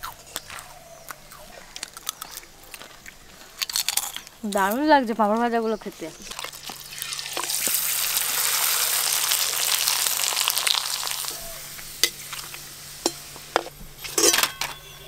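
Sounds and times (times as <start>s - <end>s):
frying in hot oil sizzle: 6.3s - 14.3s
metal spoon clinking on pan: 12.0s - 12.2s, 13.0s - 15.0s.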